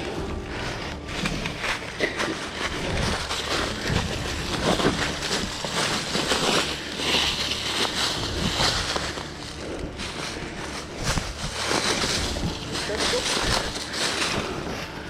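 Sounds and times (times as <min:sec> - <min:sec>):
footsteps crunching dry leaves: 0:00.0 - 0:15.0.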